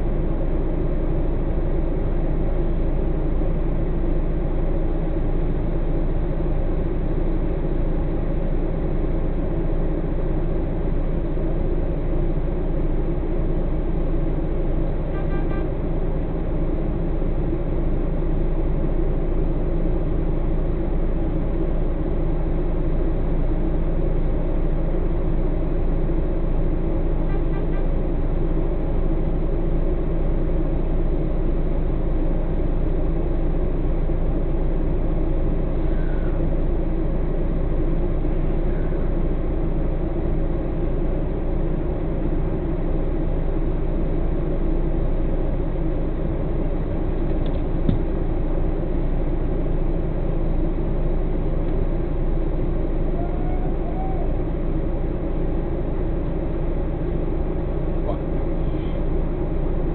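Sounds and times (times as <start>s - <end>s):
diesel truck engine idling: 0.0s - 59.9s
faint high tone: 53.1s - 54.4s.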